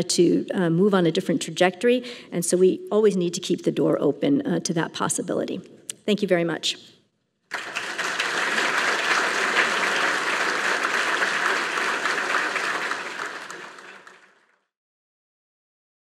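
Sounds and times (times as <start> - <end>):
audience applauding: 7.5 - 14.7.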